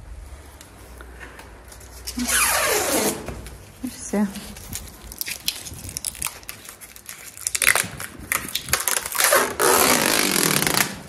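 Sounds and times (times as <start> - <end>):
plastic film crinkling: 3.5 - 11.0
plastic film ripping: 4.4 - 11.0.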